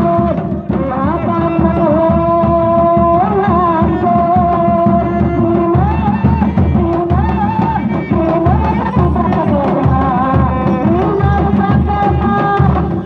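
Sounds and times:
hand drums playing a rhythm: 0:00.0 - 0:13.0
wavering ornamented melody: 0:08.9 - 0:12.4.

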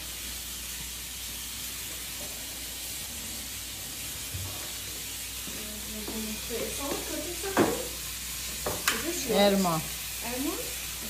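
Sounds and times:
burger sizzling in a pan: 0:00.0 - 0:11.0
tap running into sink: 0:05.4 - 0:07.9, 0:08.6 - 0:09.1.

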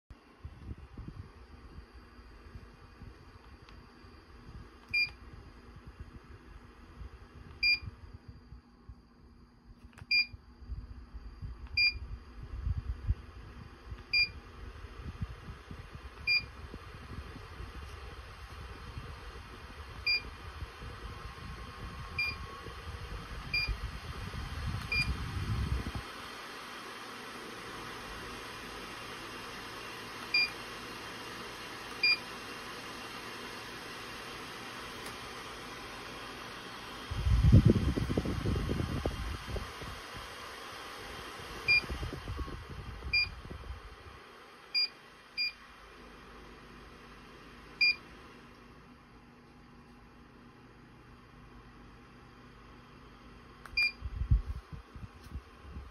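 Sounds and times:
fan airflow rush: 0:00.1 - 0:55.9
low rumble of air noise: 0:00.1 - 0:55.9
fan electronic beeps: 0:01.0 - 0:05.4, 0:07.4 - 0:13.1, 0:13.9 - 0:26.1, 0:29.6 - 0:30.8, 0:31.9 - 0:32.5, 0:36.2 - 0:43.9, 0:44.7 - 0:45.7, 0:47.7 - 0:48.2, 0:53.6 - 0:54.6
fan control panel beeps: 0:04.8 - 0:05.2, 0:07.5 - 0:08.0, 0:09.9 - 0:10.4, 0:11.6 - 0:12.1, 0:14.1 - 0:14.4, 0:16.2 - 0:16.6, 0:20.0 - 0:20.3, 0:22.1 - 0:22.6, 0:23.5 - 0:23.8, 0:24.8 - 0:25.2, 0:30.2 - 0:30.6, 0:31.9 - 0:32.3, 0:41.6 - 0:43.5, 0:44.7 - 0:45.6, 0:47.8 - 0:48.1, 0:53.6 - 0:54.1.

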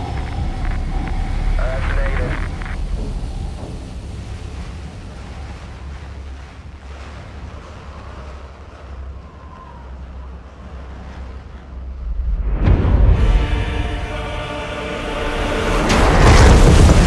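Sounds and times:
rushing wind-like noise: 0:00.0 - 0:11.0
low engine rumble: 0:00.0 - 0:17.0.

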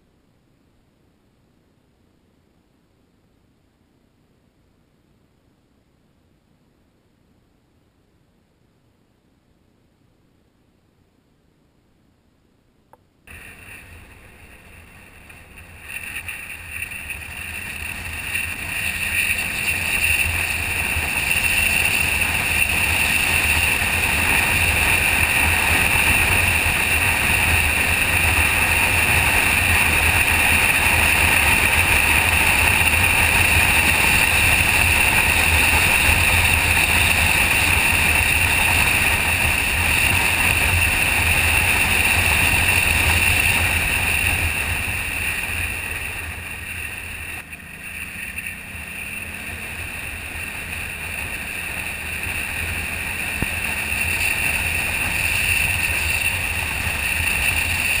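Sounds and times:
motorcycle engine: 0:13.3 - 0:58.0
wind rushing over microphone: 0:13.3 - 0:58.0.

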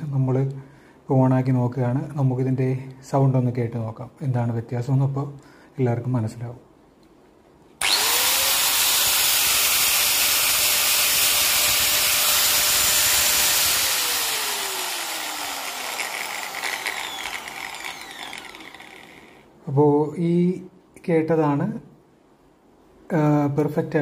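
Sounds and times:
angle grinder whining: 0:07.8 - 0:19.5.

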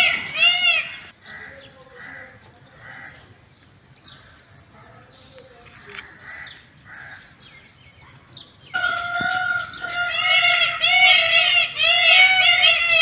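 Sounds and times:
peafowl soft calls: 0:08.7 - 0:13.0.

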